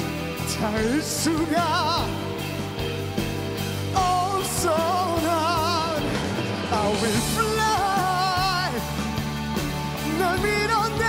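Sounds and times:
pop band accompaniment: 0.0s - 11.0s
man singing with vibrato: 0.4s - 2.4s, 3.9s - 9.0s, 10.0s - 11.0s.

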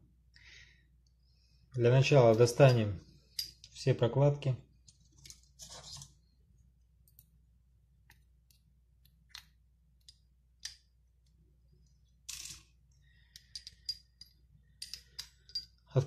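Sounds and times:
metal pin clicking and scraping: 8.1s - 15.9s.

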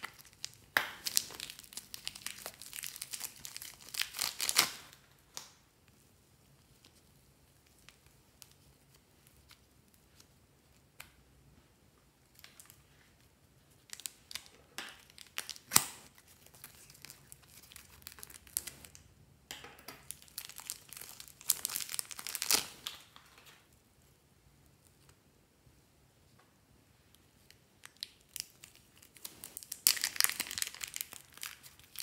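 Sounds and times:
plastic packet crinkling and tearing: 0.0s - 5.1s, 13.8s - 19.0s, 20.0s - 23.6s, 27.4s - 32.0s.

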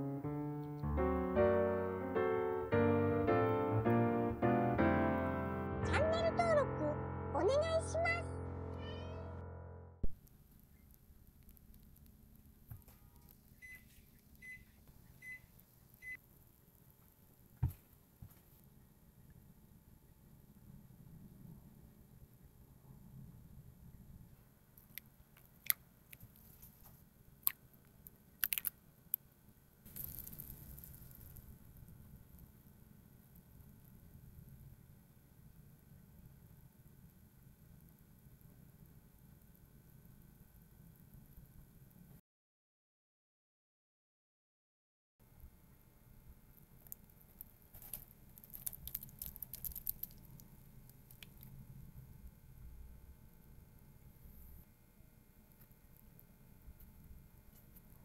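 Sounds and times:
small crackling ticks: 10.1s - 17.5s, 24.8s - 29.3s, 29.9s - 32.6s, 36.6s - 42.1s, 46.6s - 51.7s, 55.5s - 58.0s
wet squishing and patter: 27.4s - 28.8s, 46.8s - 51.6s.

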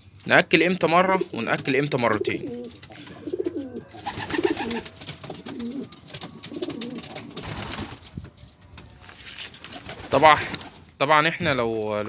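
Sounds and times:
pigeons cooing: 1.0s - 7.9s
pigeons pecking grain clicks: 1.2s - 8.1s.

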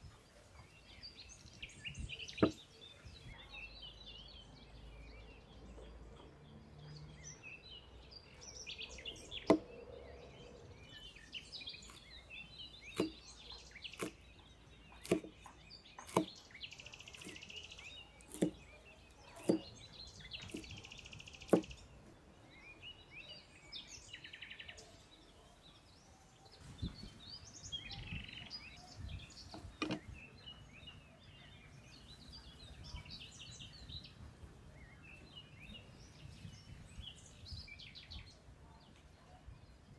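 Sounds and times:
birds chirping: 0.0s - 39.9s
cleaver chopping on wooden board: 2.4s - 2.6s, 9.4s - 9.7s, 12.9s - 13.2s, 14.0s - 14.2s, 15.0s - 16.4s, 17.2s - 17.6s, 18.2s - 18.6s, 19.4s - 19.8s, 20.4s - 20.8s, 21.5s - 21.8s, 29.5s - 30.0s.

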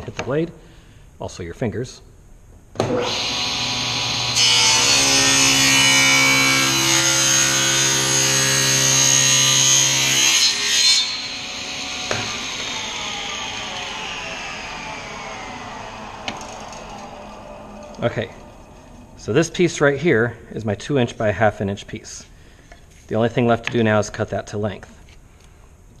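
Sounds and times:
table saw ripping a board: 2.8s - 18.5s
saw blade whine spinning down: 11.2s - 19.9s.

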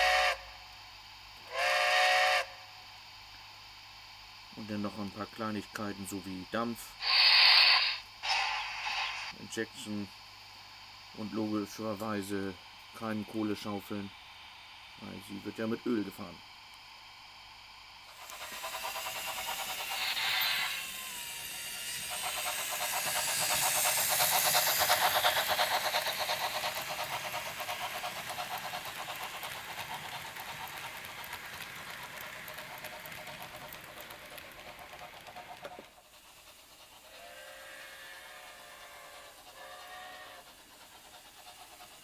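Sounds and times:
model train whistle: 0.0s - 0.6s, 1.5s - 2.7s, 37.1s - 40.5s
model train clattering on track: 21.7s - 37.0s.

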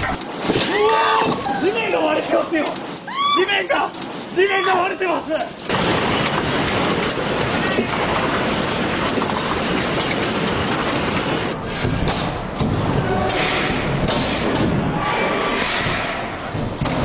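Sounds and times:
earthquake rumbling and clattering: 0.0s - 17.0s
heavy thuds: 5.6s - 17.0s.

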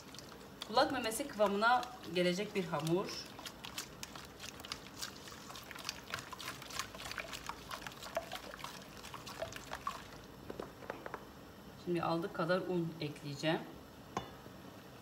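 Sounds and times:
wet squelching in a bowl: 0.0s - 10.3s.

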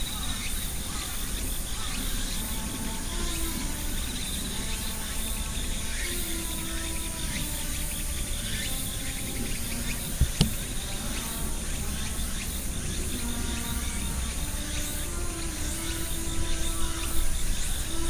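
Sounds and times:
insects chirring: 0.0s - 18.0s
short sharp knocks: 10.2s - 10.6s.

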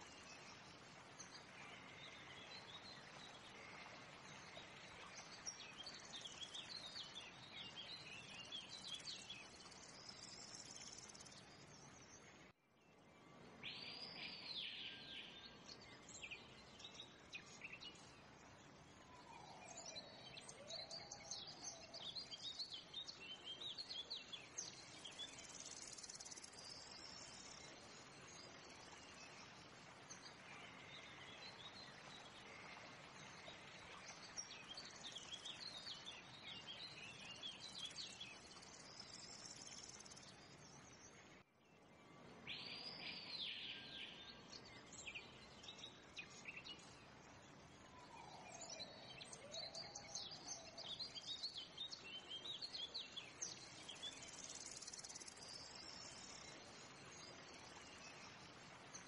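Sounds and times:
insect hiss: 24.6s - 27.9s, 53.4s - 58.8s.

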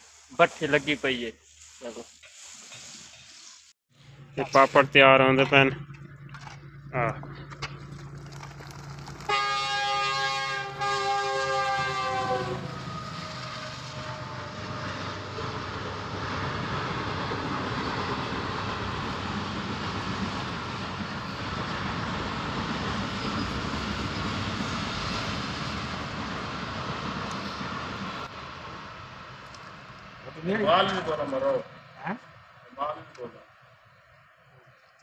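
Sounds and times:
multi-tone horn: 9.2s - 13.3s.

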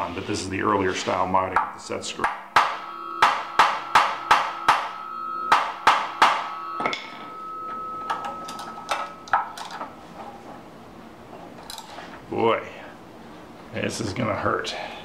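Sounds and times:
hammer striking steel punch: 1.6s - 8.3s.

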